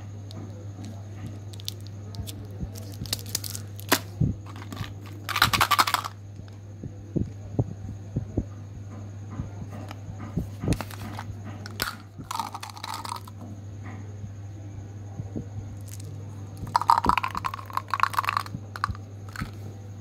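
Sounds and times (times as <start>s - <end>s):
steady low hum: 0.0s - 20.0s
candies rattling in plastic bottle: 2.8s - 6.2s, 10.8s - 13.3s, 15.8s - 19.6s.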